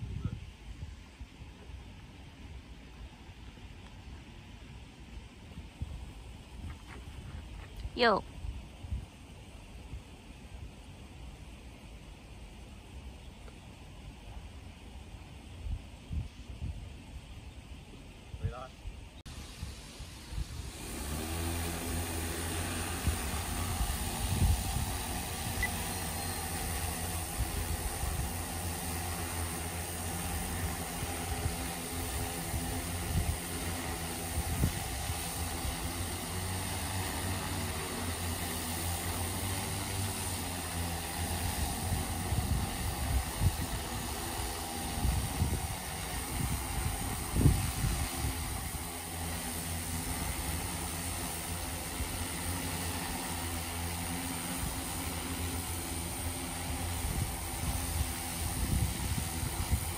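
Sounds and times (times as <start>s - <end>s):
drone propellers humming: 1.6s - 59.9s
wind buffeting microphone: 18.3s - 37.6s, 41.1s - 49.1s, 56.6s - 59.9s.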